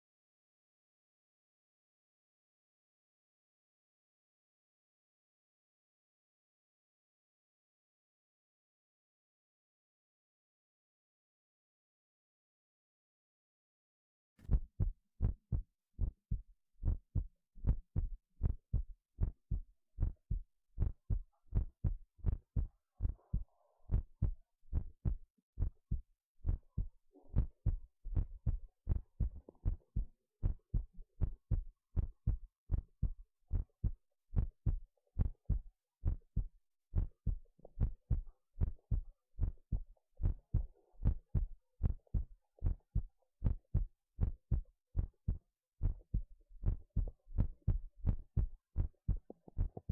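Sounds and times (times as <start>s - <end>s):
heartbeat thumps: 14.4s - 49.9s.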